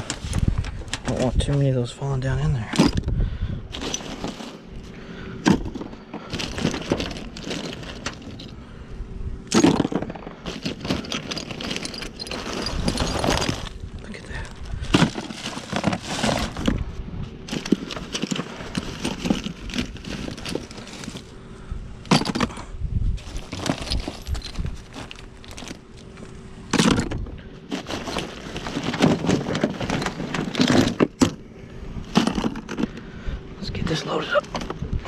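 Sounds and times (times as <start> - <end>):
plastic bag rustling: 3.7 - 4.9, 6.2 - 8.6, 9.7 - 21.3, 23.2 - 26.4, 27.6 - 31.2
shotgun shells clattering: 5.5 - 8.6, 9.5 - 13.8, 23.3 - 27.2.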